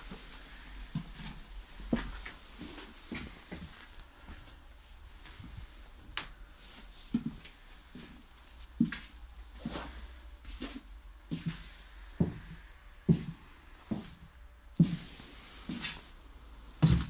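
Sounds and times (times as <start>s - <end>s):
footsteps on bus floor: 0.1s - 4.6s, 6.7s - 16.1s.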